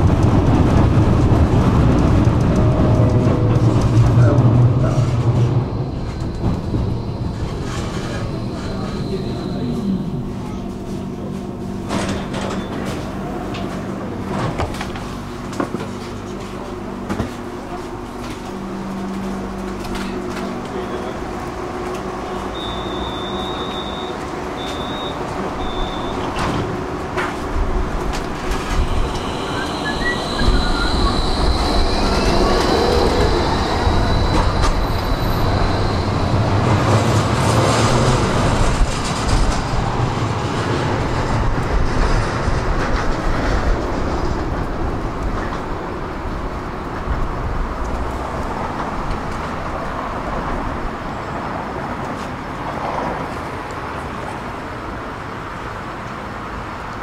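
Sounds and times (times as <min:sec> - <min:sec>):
tram running on rails: 0:00.0 - 0:57.0
high wheel squeal: 0:04.2 - 0:10.6, 0:22.3 - 0:26.3, 0:28.7 - 0:36.8.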